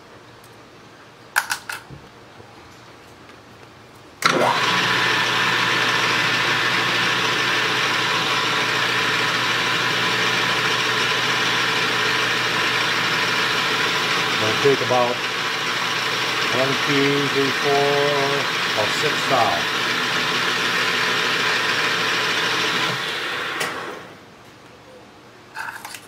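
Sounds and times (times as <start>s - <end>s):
metal lathe spinning: 4.2s - 23.1s.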